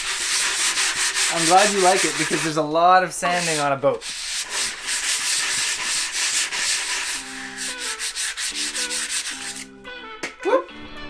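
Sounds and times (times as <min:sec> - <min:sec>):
sandpaper rubbing wood: 0:00.0 - 0:02.6, 0:03.2 - 0:09.7
faint guitar music: 0:08.7 - 0:11.0.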